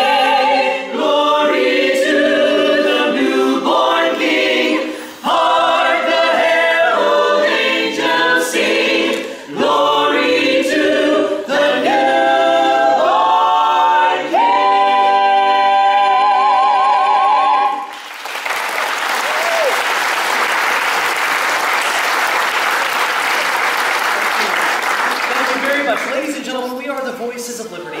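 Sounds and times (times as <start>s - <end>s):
a cappella choir singing: 0.0s - 18.0s
audience applause: 17.9s - 26.4s.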